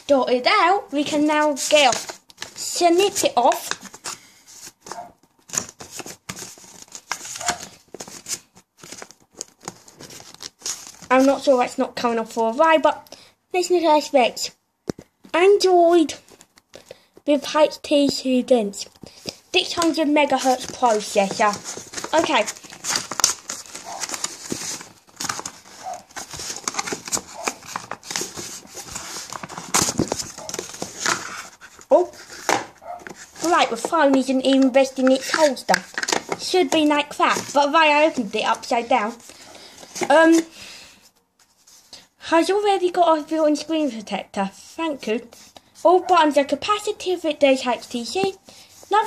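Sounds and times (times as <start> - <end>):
packaging crinkling and rustling: 1.3 - 11.3, 19.0 - 40.6.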